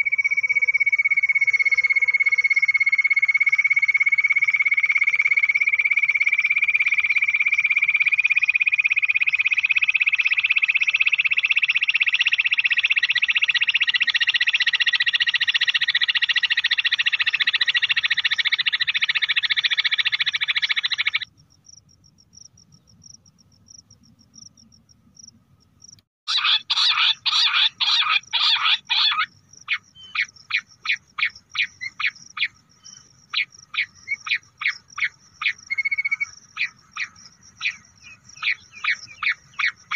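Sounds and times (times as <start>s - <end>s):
quail sharp notes: 26.3s - 32.6s
quail trilling: 26.3s - 39.9s.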